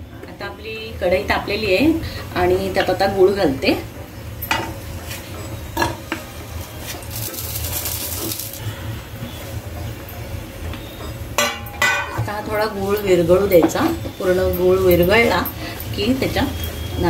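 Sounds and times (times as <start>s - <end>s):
spatula clinking on pan: 11.4s - 12.2s.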